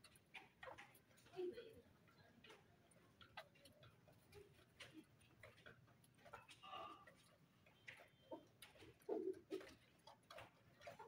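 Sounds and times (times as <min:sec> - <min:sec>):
chickens pecking on concrete: 0:00.0 - 0:11.0.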